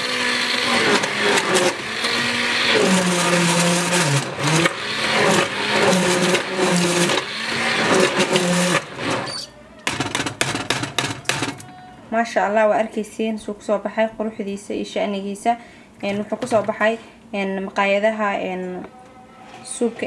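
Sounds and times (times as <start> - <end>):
stick blender motor running: 0.0 - 11.6.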